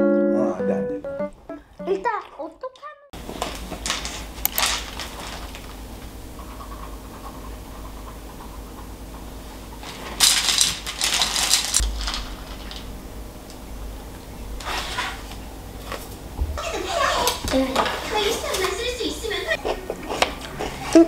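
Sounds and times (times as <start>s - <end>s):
cereal rattling into bowl: 3.4s - 5.8s, 9.9s - 12.8s.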